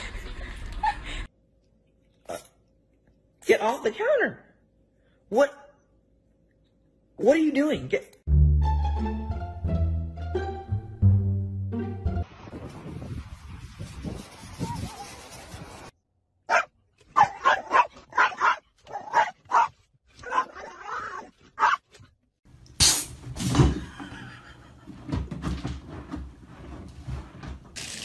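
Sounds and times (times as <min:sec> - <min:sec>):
small dog barking: 0:16.5 - 0:20.8, 0:21.6 - 0:21.8.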